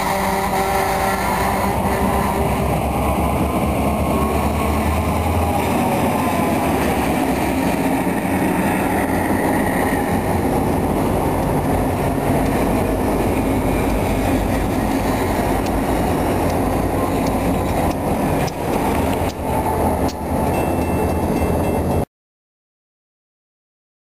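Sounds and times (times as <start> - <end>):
locomotive engines running: 0.0 - 22.0
wheels rumbling on rails: 0.0 - 22.1.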